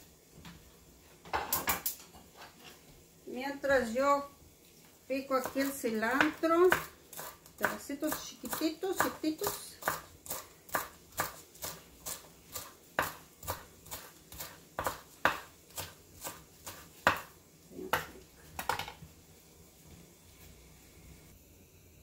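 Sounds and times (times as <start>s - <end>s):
knife chopping on wooden board: 5.4s - 17.3s.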